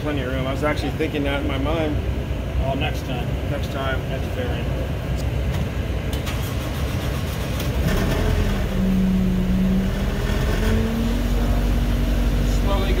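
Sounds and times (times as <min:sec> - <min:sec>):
vehicle engine running: 0:06.2 - 0:13.0.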